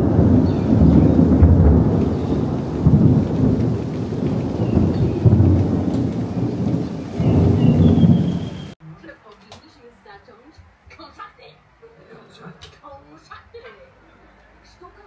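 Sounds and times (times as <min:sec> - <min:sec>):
rain falling on water and paving: 0:00.0 - 0:08.8
thunder rumbling: 0:00.0 - 0:08.8.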